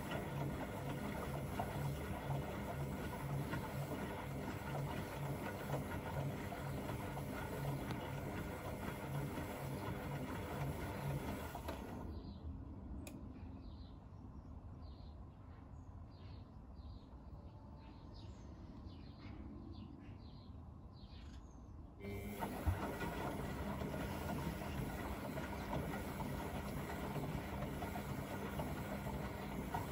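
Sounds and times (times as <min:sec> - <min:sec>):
washing machine water rush: 0:00.0 - 0:12.3, 0:22.0 - 0:29.9
washing machine low hum: 0:00.0 - 0:13.0, 0:22.0 - 0:29.9.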